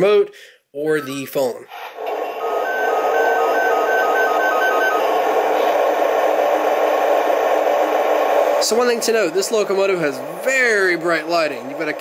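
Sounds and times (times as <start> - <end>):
speaker hum: 2.2 - 12.0
electronic chirps alternating pitch: 2.4 - 5.7.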